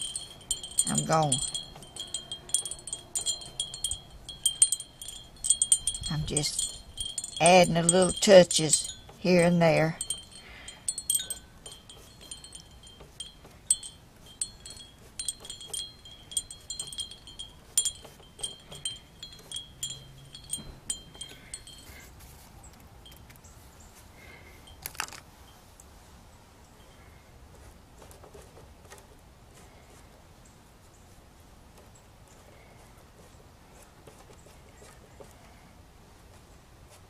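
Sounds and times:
metal wind chimes tinkling: 0:00.0 - 0:23.6, 0:24.2 - 0:25.7.

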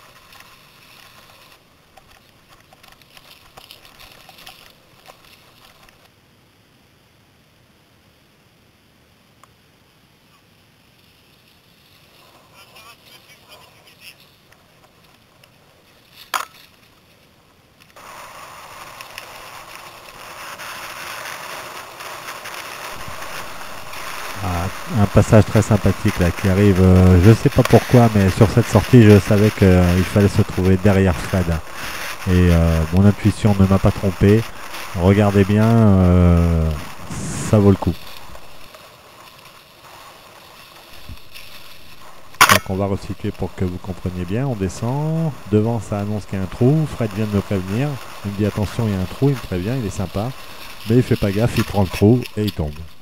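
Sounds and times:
bike clicks and rattles: 0:00.0 - 0:06.1
wind and tyres on trail: 0:00.0 - 0:53.0.

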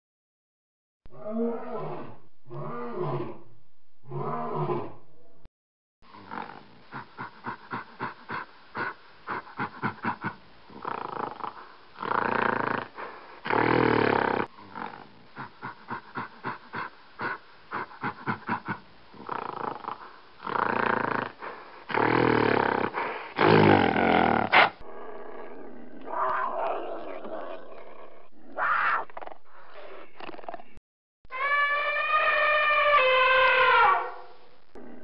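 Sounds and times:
red panda calling: 0:31.3 - 0:34.4.

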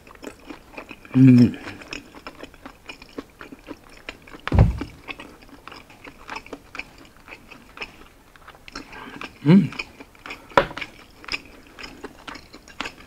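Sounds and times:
chewing crispy pork: 0:00.0 - 0:13.0
low thump: 0:04.5 - 0:05.0.

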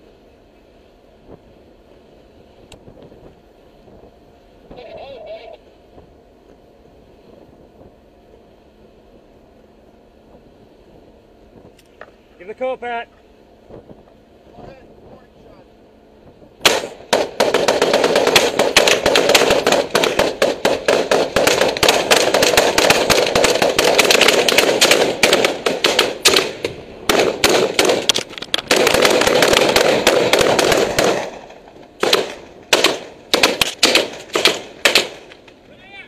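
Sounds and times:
rapid gunfire: 0:16.6 - 0:35.3.

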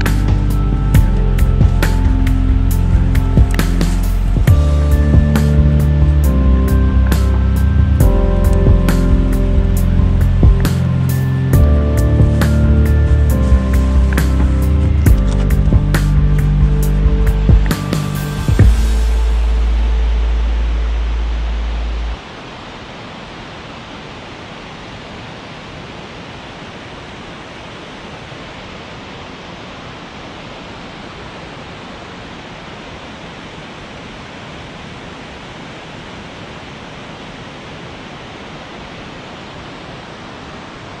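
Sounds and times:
distant creek rushing: 0:00.0 - 0:41.0
deep low tone: 0:11.6 - 0:17.7, 0:18.4 - 0:22.2.

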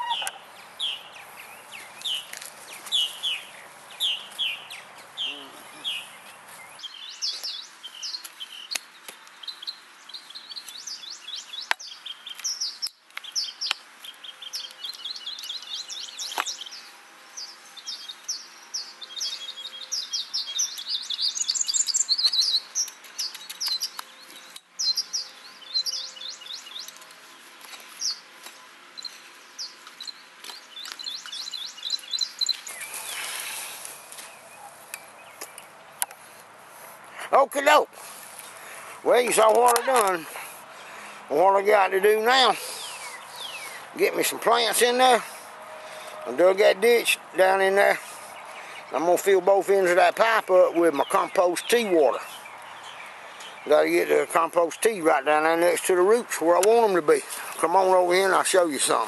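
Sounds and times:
songbirds chirping: 0:00.0 - 0:59.0.

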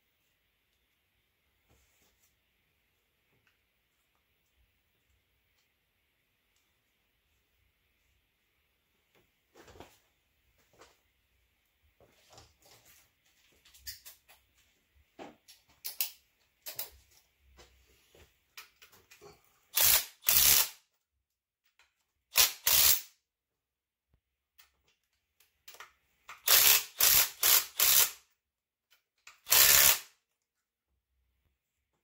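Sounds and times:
ratchet wrench clicking: 0:19.7 - 0:20.8, 0:22.3 - 0:23.1, 0:26.3 - 0:28.2, 0:29.3 - 0:30.1.

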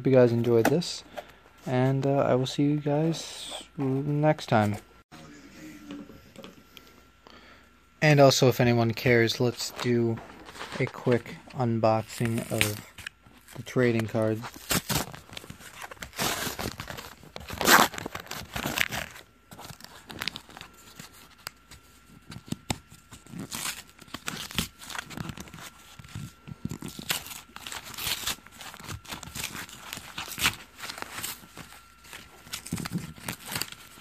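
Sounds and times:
cardboard box tearing: 0:14.4 - 0:20.5.

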